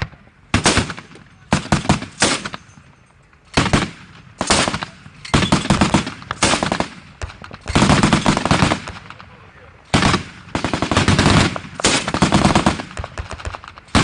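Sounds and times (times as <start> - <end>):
automatic gunfire bursts: 0.0 - 2.6, 3.6 - 9.2, 9.9 - 14.0.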